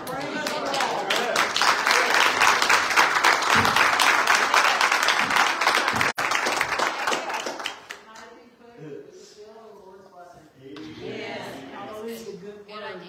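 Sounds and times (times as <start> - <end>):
congregation applauding: 0.0 - 8.2.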